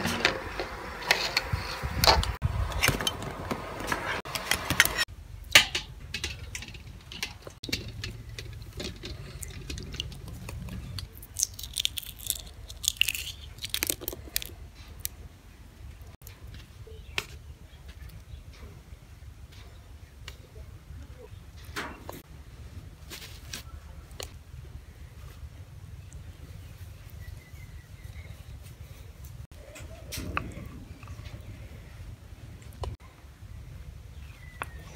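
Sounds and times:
eggshell cracking: 0:08.1 - 0:15.2.

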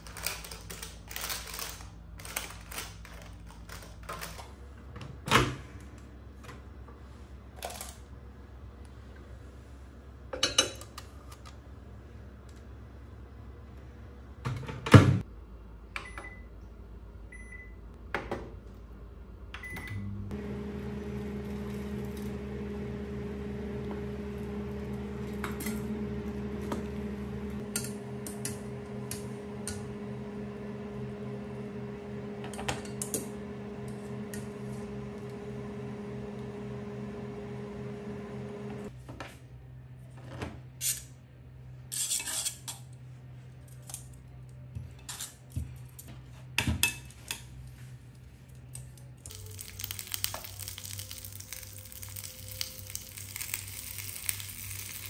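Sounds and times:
appliance hum: 0:00.0 - 0:55.0
food sizzling in a pan: 0:49.3 - 0:55.0.

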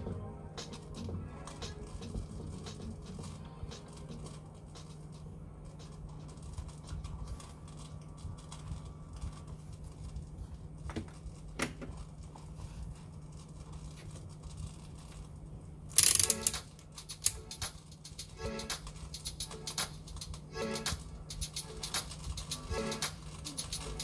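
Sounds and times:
low hum: 0:00.0 - 0:24.0
tools ticking on circuit boards: 0:16.0 - 0:24.0.

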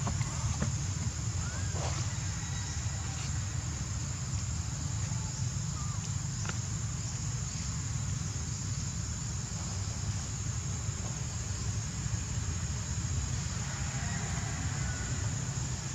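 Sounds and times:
continuous low rumble: 0:00.0 - 0:15.9
insects trilling: 0:00.0 - 0:15.9.

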